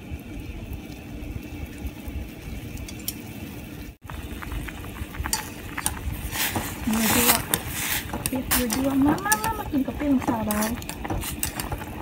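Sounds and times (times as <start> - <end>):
broth boiling and bubbling: 0.0 - 12.0.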